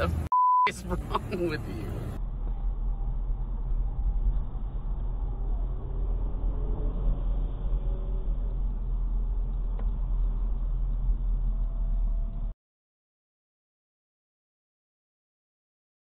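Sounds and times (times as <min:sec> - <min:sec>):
car road and engine rumble: 0:00.0 - 0:12.6.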